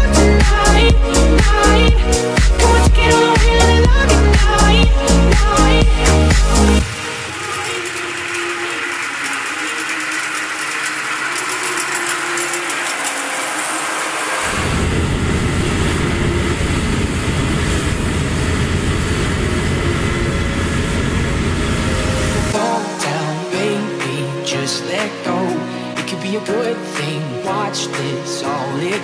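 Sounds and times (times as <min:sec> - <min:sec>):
combine harvester running: 0:06.7 - 0:22.6.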